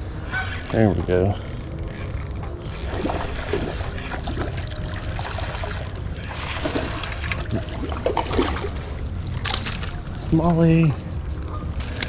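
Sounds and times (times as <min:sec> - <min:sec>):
stream water splashing: 0:02.8 - 0:10.5.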